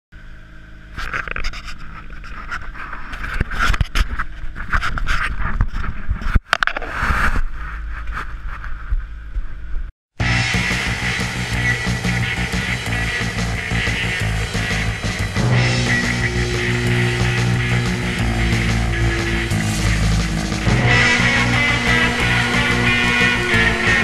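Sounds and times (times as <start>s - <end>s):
boat engine drone: 10.2s - 24.0s.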